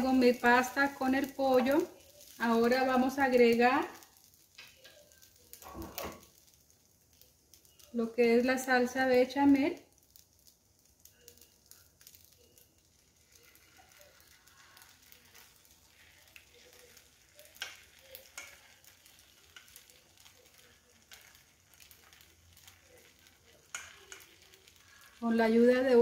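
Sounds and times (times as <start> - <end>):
sizzling in a hot pan: 0.0 - 26.0
spatula scraping a pot: 13.2 - 25.2.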